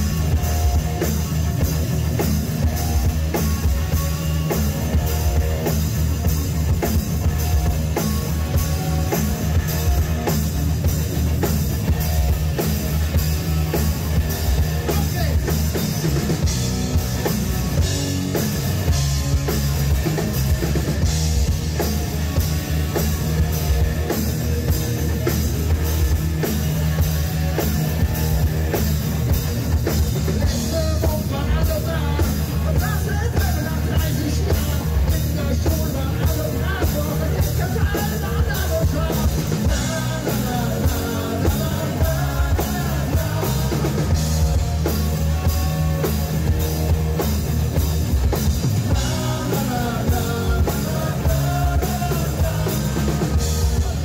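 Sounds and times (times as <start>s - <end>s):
rock music: 0.0s - 54.0s.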